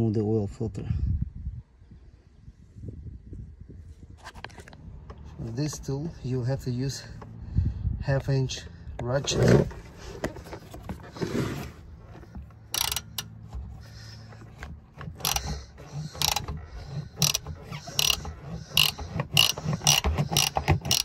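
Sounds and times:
ratchet clicking: 12.1s - 21.0s.

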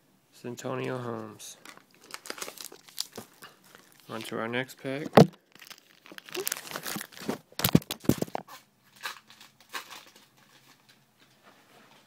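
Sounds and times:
foil wrapper crinkling and tearing: 1.6s - 4.4s, 5.2s - 11.0s.

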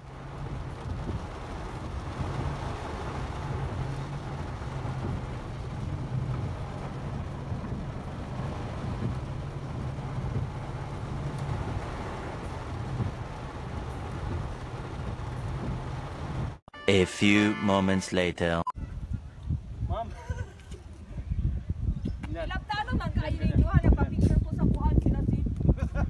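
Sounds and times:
low car engine hum: 0.0s - 16.6s
rain on car roof: 0.0s - 16.6s.

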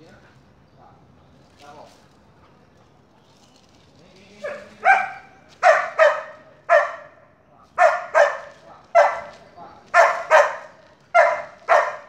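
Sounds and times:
dog barking: 4.4s - 7.2s, 7.8s - 12.0s.

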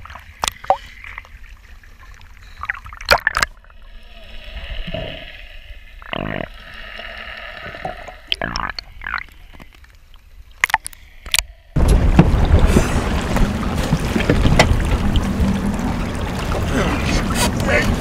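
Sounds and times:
sea water sloshing and gurgling: 0.0s - 18.0s
sharp splashes: 11.8s - 18.0s.

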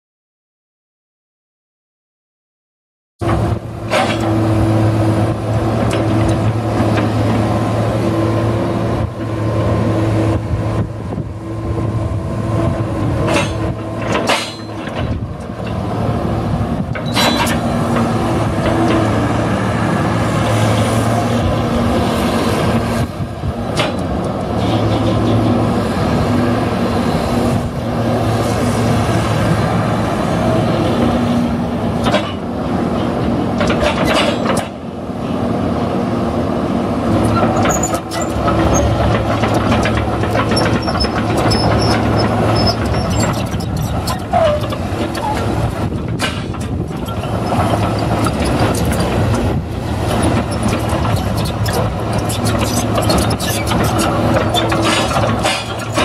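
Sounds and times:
excavator diesel engine running: 3.2s - 56.0s
sharp metal clanks: 13.3s - 14.9s.

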